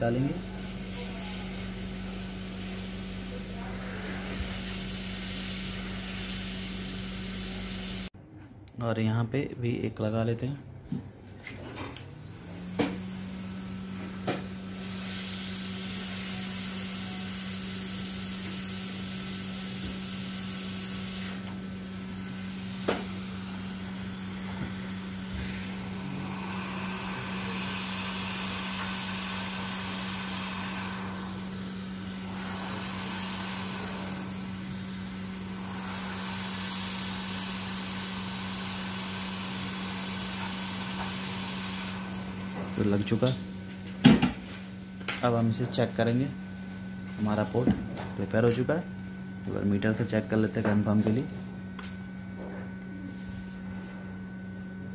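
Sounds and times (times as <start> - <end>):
fan hum: 0.0 - 54.9
rushing hiss of air: 2.3 - 8.1, 14.8 - 42.5.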